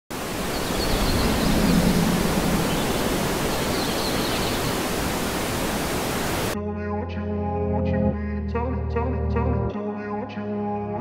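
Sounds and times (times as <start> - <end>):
waterfall roaring: 0.1 - 6.6.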